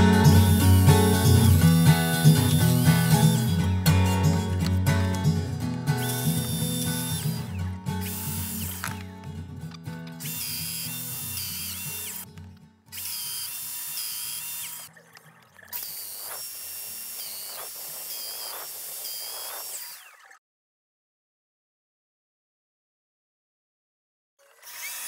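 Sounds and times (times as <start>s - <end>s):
power joiner motor whine: 0.0s - 5.3s, 5.9s - 9.1s, 10.2s - 12.2s, 12.9s - 14.9s, 15.7s - 20.4s, 24.4s - 25.0s.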